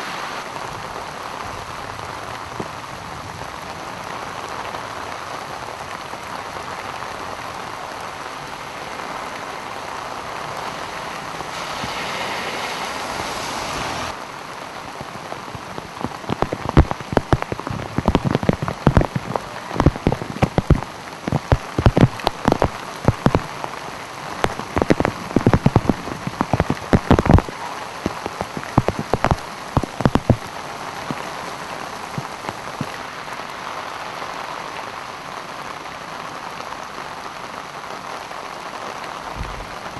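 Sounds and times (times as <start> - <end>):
heavy rain falling: 0.0 - 39.9
rushing wash of water: 0.0 - 39.9
loud irregular knocks and pops: 16.0 - 23.5, 24.4 - 30.5.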